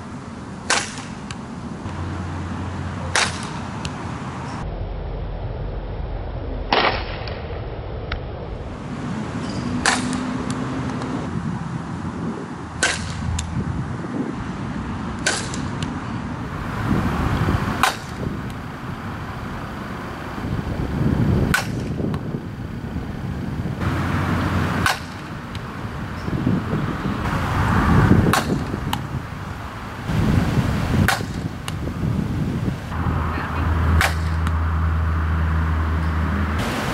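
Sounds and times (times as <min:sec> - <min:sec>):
bat hitting softball: 0:00.6 - 0:01.4, 0:03.0 - 0:04.0, 0:09.4 - 0:11.2, 0:12.8 - 0:13.6, 0:15.2 - 0:16.2, 0:17.7 - 0:18.6, 0:21.4 - 0:22.3, 0:24.3 - 0:26.3, 0:28.2 - 0:29.1, 0:31.0 - 0:31.9, 0:33.9 - 0:34.6.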